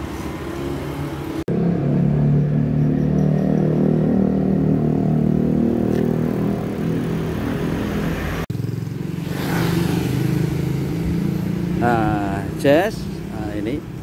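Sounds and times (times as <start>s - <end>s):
vehicle engine humming: 0.0s - 14.0s.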